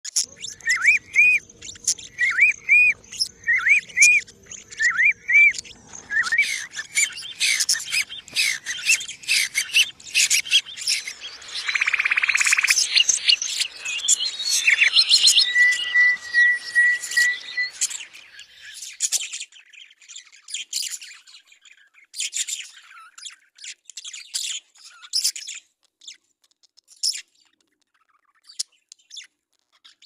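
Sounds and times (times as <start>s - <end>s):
whistled bird notes: 0.1s - 23.2s
songbirds singing and calling: 0.1s - 30.0s
buzzing bird trill: 0.6s - 18.7s.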